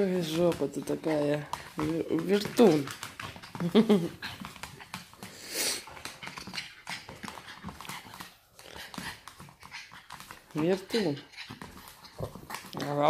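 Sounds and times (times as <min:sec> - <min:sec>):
dog scuffling on wooden floor: 0:00.0 - 0:13.0
small dog noises: 0:00.2 - 0:13.0
dog breathy huff: 0:05.2 - 0:09.2.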